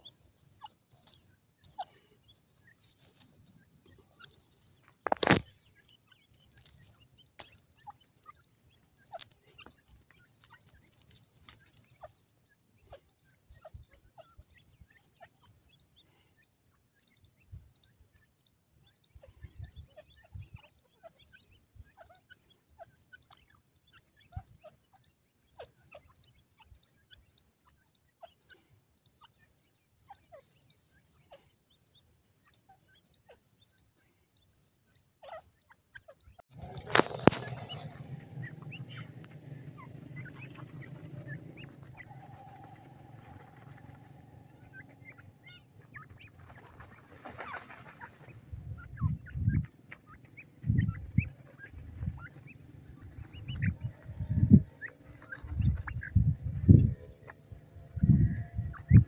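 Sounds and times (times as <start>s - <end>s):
bird pecking and scratching ground: 0.0s - 59.0s.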